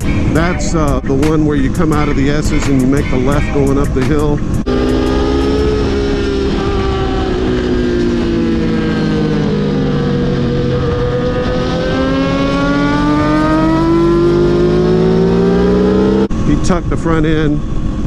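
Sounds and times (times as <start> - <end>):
vehicle engine running: 0.0 - 18.0.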